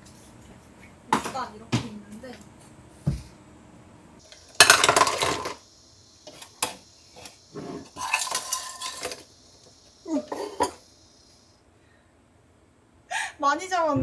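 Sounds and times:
clams clattering in container: 4.6s - 5.6s, 7.9s - 9.2s.

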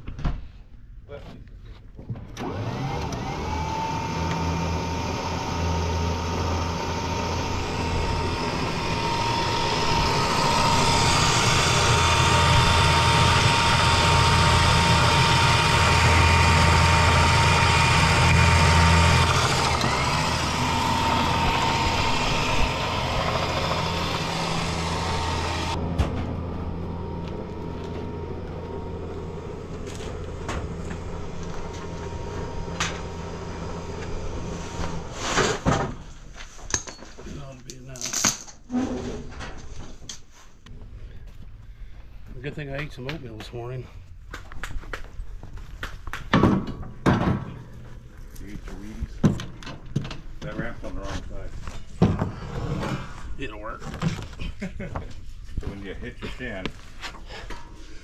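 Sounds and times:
truck engine hum and whine: 2.4s - 35.2s.

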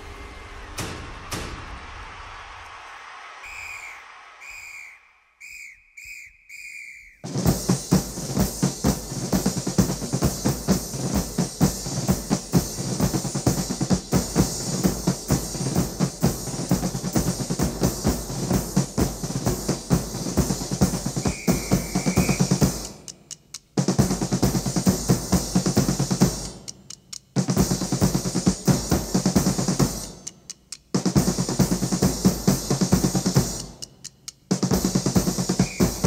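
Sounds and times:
fast drum solo: 7.2s - 30.3s, 30.9s - 36.0s.

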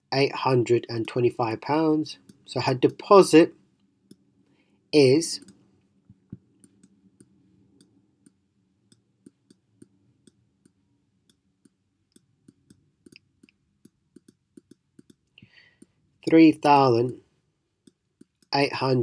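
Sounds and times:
stylus pen tapping on tablet: 7.8s - 15.2s.

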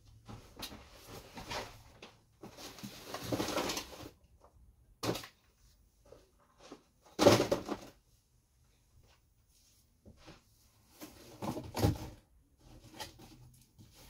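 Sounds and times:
rustling handling noise: 0.1s - 8.0s.

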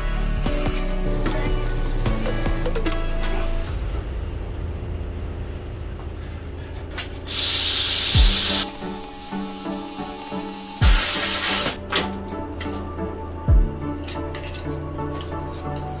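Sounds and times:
plasma cutter hissing: 7.3s - 11.8s.

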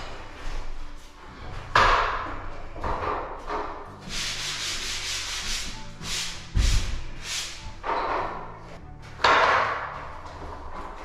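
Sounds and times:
hand sanding joint compound: 4.0s - 7.8s.

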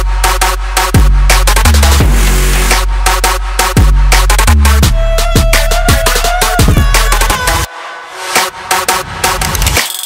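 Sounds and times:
heavy bass line: 0.0s - 7.7s
electronic dance music: 0.0s - 10.0s.

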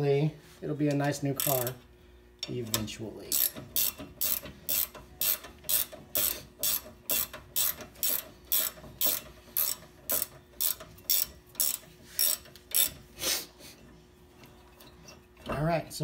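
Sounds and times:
ratchet wrench clicking: 1.4s - 1.8s, 2.4s - 13.0s.

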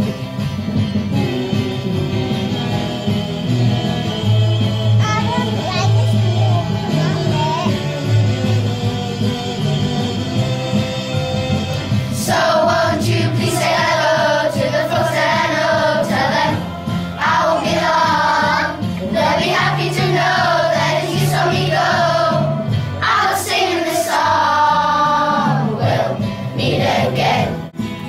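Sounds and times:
instrumental accompaniment: 0.0s - 28.0s
children's choir singing: 6.6s - 27.7s.

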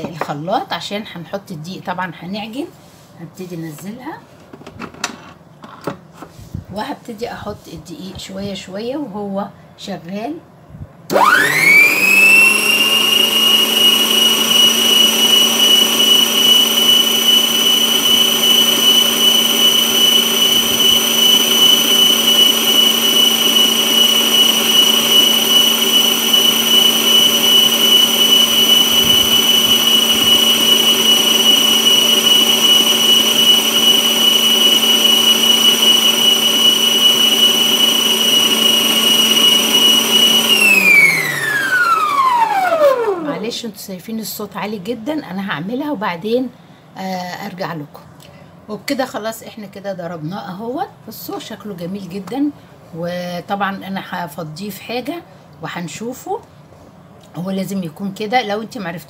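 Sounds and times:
food processor whining: 11.1s - 43.6s.

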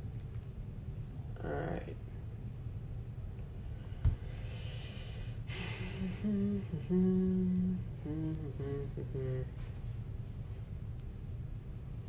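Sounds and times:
low background hum: 0.0s - 12.0s
click: 0.2s - 0.5s
breathy hiss: 4.2s - 9.6s
person humming: 5.6s - 9.7s.

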